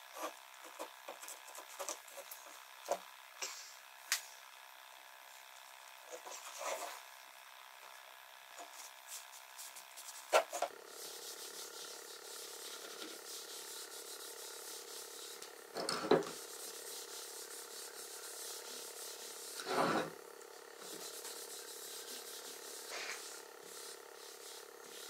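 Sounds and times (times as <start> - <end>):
cloth rubbing wood: 16.3 - 20.1.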